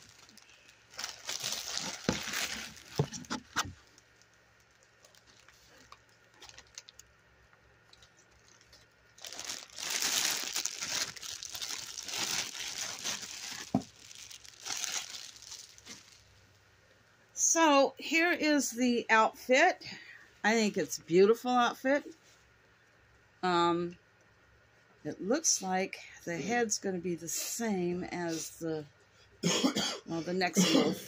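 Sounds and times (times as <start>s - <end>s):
packaging crinkling: 0.0s - 7.2s, 7.8s - 16.3s.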